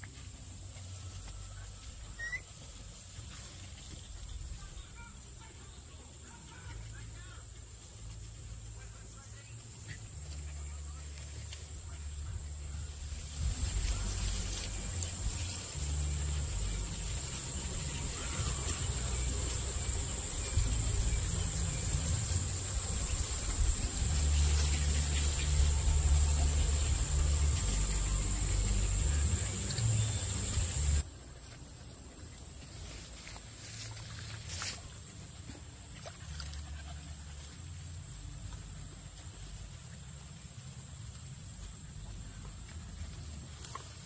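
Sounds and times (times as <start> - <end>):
short chirps: 2.2 - 2.5
low rumble: 10.4 - 31.1
steady high hiss: 11.2 - 31.1
high-pitched insect drone: 13.2 - 31.0.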